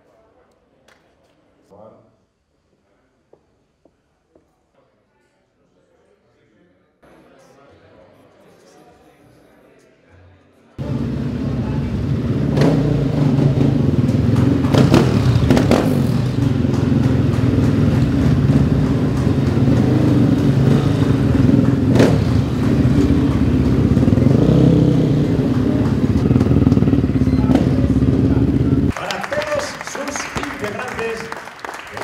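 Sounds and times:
motorcycle engines at low revs: 0:10.8 - 0:28.9.

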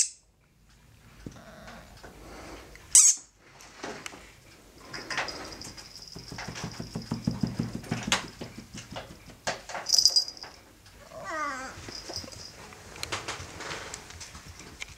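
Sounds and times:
cat purring: 0:01.2 - 0:02.7
collar bell jingling: 0:05.0 - 0:07.6, 0:09.9 - 0:10.7, 0:11.5 - 0:12.7.

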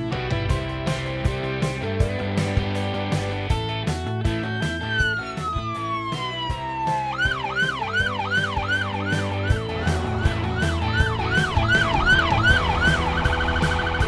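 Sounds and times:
background music with steady beat: 0:00.0 - 0:14.0
police siren wailing and yelping: 0:04.3 - 0:14.0.

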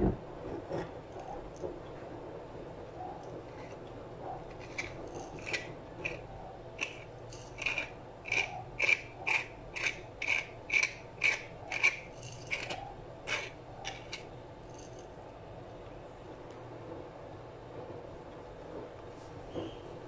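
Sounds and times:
pepper mill grinding: 0:04.5 - 0:15.1.

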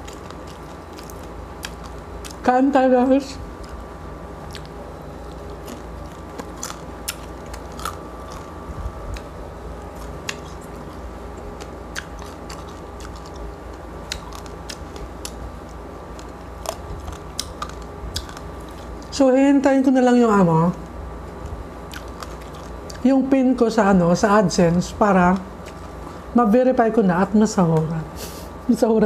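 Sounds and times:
crackling crunches: 0:00.0 - 0:02.5, 0:03.5 - 0:19.2, 0:20.7 - 0:23.1, 0:24.8 - 0:26.3
chewing crispy pork skin: 0:00.0 - 0:19.2, 0:20.3 - 0:23.1, 0:24.2 - 0:26.3
steady low hum: 0:00.0 - 0:29.0.

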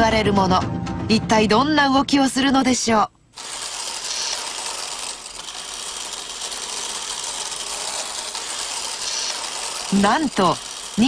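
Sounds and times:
clockwork gears clattering: 0:03.4 - 0:11.0.

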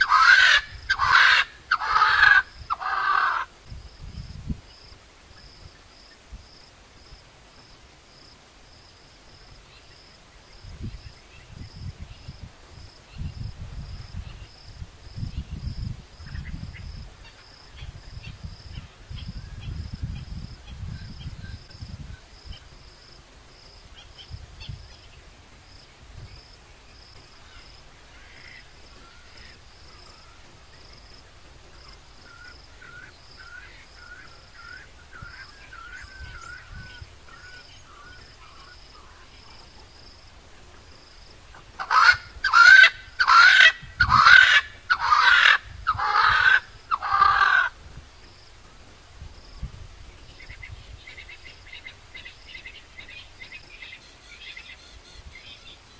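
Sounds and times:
bird calling loudly: 0:00.0 - 0:03.5, 0:41.5 - 0:47.8.

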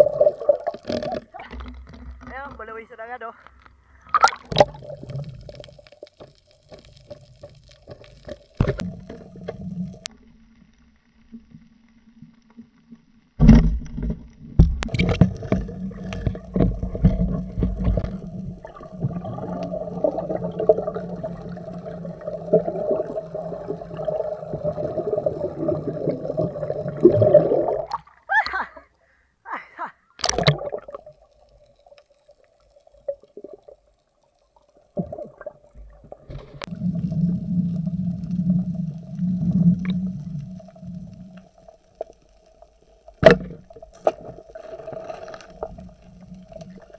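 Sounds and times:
churning gurgling water: 0:14.8 - 0:28.2.

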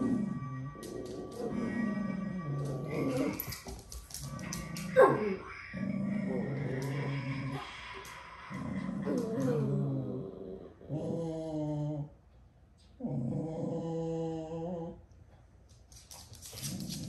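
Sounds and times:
dog growling low: 0:04.2 - 0:12.2, 0:13.0 - 0:15.1.

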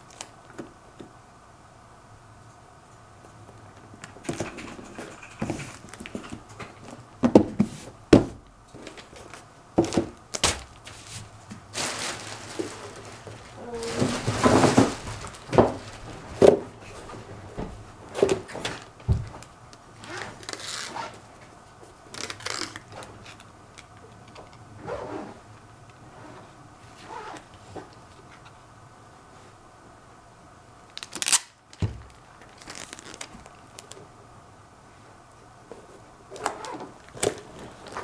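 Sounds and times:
packing tape pulled off roll: 0:00.0 - 0:00.7, 0:08.8 - 0:16.2, 0:18.1 - 0:21.2, 0:22.1 - 0:25.0, 0:30.9 - 0:34.1, 0:36.3 - 0:38.0.

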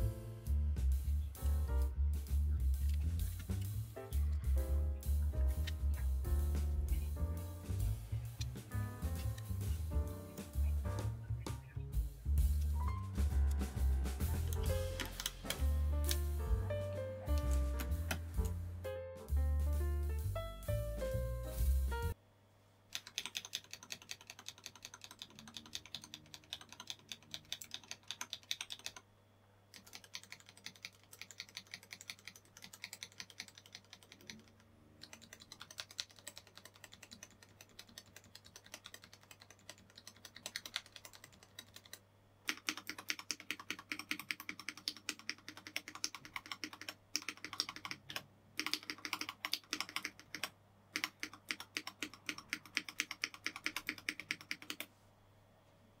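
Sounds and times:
mechanical keyboard typing: 0:14.4 - 0:16.5, 0:22.9 - 0:29.0, 0:29.7 - 0:54.9.

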